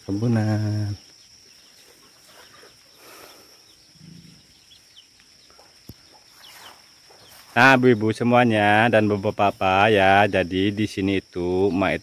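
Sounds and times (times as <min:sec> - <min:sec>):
faint bird chirps: 0:00.0 - 0:12.0
high-pitched insect drone: 0:00.0 - 0:12.0
soft low animal call: 0:01.8 - 0:04.6.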